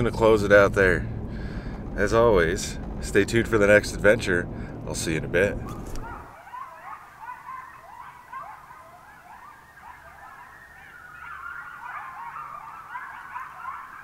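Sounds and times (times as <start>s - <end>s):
chorus of animal calls: 5.6s - 14.0s.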